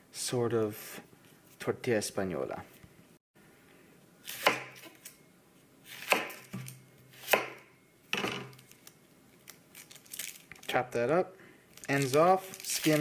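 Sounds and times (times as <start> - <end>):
knife cutting onion on board: 4.2 - 5.1, 5.8 - 7.7.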